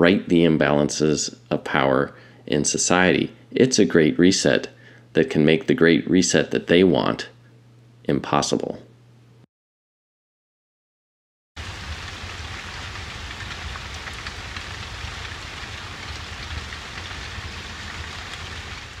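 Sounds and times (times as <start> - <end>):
heavy rain: 11.6 - 19.0.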